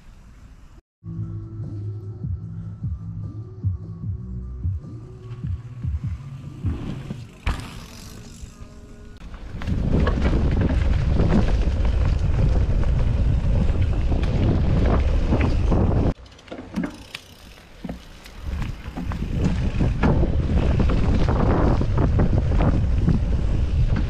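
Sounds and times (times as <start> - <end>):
bike rattle and tyre noise: 0.0 - 0.8, 4.5 - 24.0
wind rushing over microphone: 9.4 - 16.2, 18.4 - 24.0.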